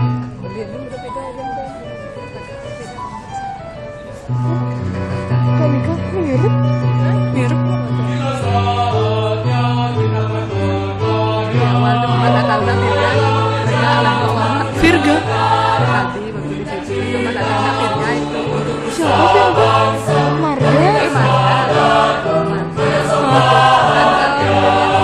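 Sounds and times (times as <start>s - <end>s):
choir singing in parts: 7.9s - 25.0s.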